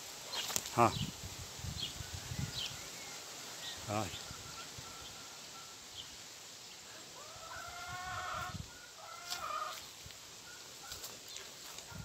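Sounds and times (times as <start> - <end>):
steady hiss: 0.0 - 7.7
farm animal wavering call: 7.0 - 11.1.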